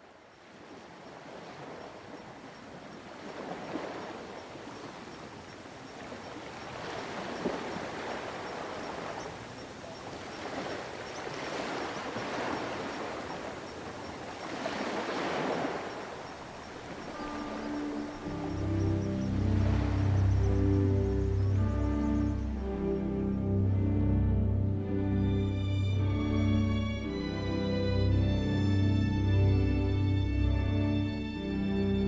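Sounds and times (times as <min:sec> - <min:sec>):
ocean waves washing in: 0:00.0 - 0:25.1.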